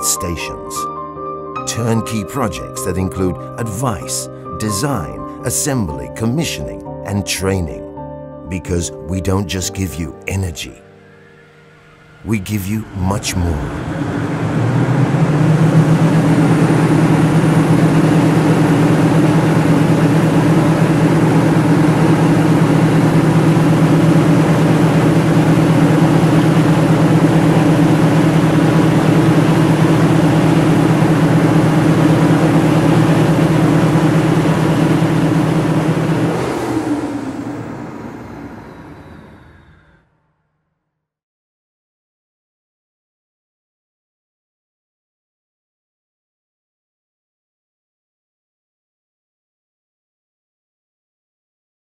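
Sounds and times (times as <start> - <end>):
diesel generator humming: 8.5 - 40.1.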